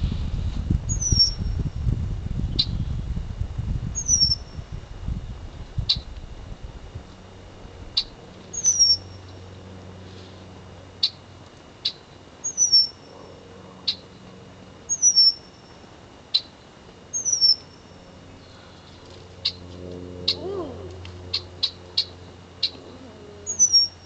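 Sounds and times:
bird whistles sliding downward: 0.9s - 1.4s, 4.0s - 4.4s, 14.9s - 15.4s.

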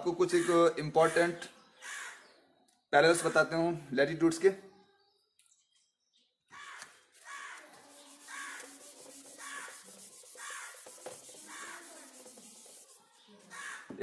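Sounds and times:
duster rubbing a whiteboard: 7.2s - 13.2s.

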